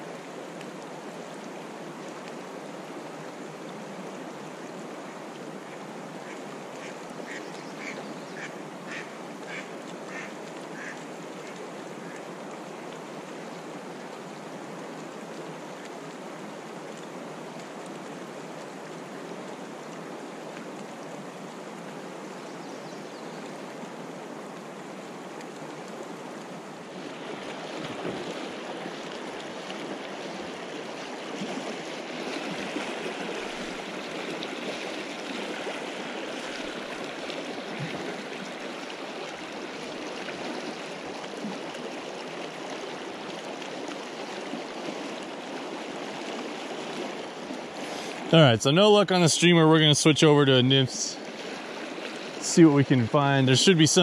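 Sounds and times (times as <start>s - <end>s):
river rushing over riffles: 23.4s - 54.0s.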